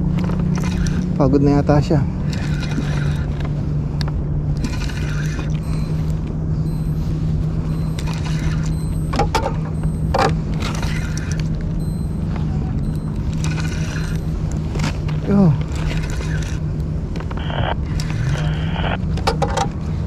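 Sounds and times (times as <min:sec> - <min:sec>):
low mechanical hum: 0:00.0 - 0:20.0
pitched squeaks: 0:04.6 - 0:16.6.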